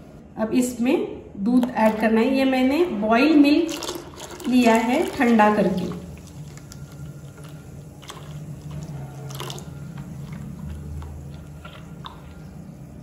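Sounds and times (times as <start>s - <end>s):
low steady hum: 0.0s - 13.0s
milk pouring into a bowl: 3.0s - 13.0s.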